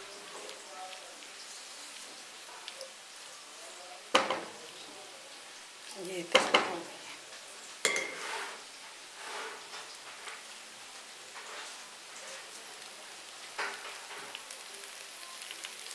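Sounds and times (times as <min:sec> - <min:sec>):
faint sizzle from pan: 0:00.0 - 0:15.9
spoon scraping and knocking pot: 0:07.9 - 0:08.6.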